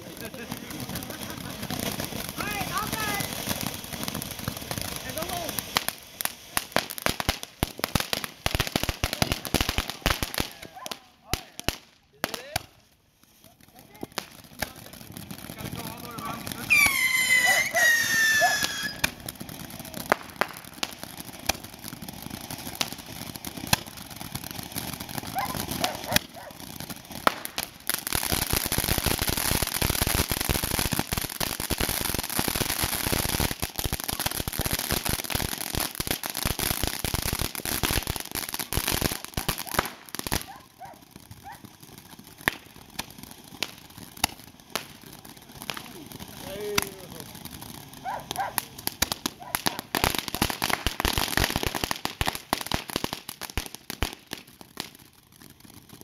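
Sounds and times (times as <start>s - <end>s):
firework crackling and popping: 0.0s - 56.0s
firework whistle: 16.6s - 19.3s.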